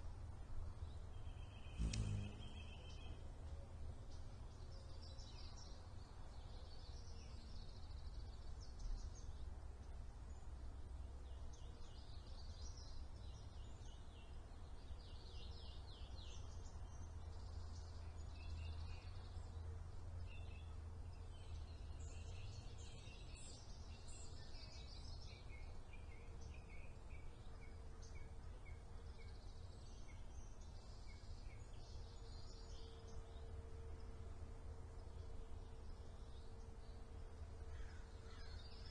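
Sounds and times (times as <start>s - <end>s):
small birds chirping: 0.9s - 3.2s.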